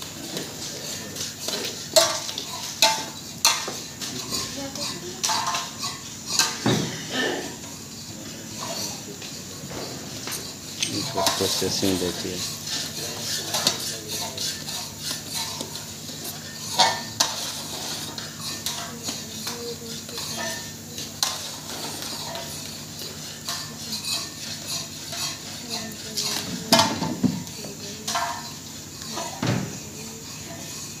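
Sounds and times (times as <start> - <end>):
metal paddles scraping woks: 9.8 - 19.4.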